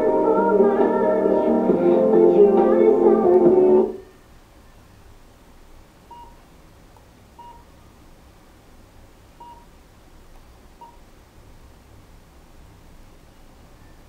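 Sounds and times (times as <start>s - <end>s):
faint touch-screen beeps: 6.1s - 6.4s, 7.4s - 7.8s, 9.4s - 9.7s, 10.8s - 11.1s, 13.7s - 14.0s.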